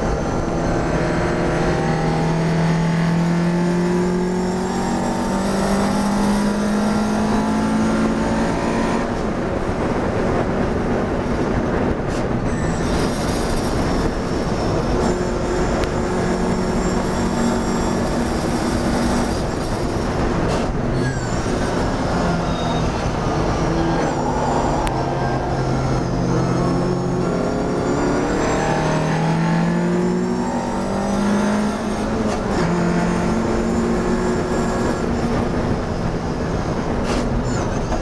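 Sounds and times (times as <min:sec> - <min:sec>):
high-pitched squealing whine: 0:00.0 - 0:38.0
racing car engine: 0:00.0 - 0:38.0.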